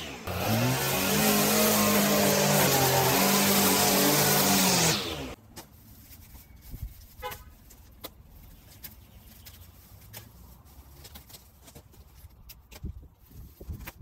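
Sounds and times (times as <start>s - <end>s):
string trimmer running: 0.0s - 5.4s
weeds pulled from gravel: 5.7s - 12.4s.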